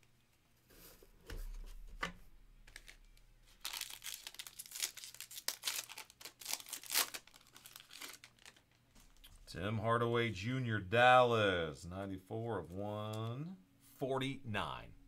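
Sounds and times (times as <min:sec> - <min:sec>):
foil wrapper crinkling and tearing: 0:02.7 - 0:09.2.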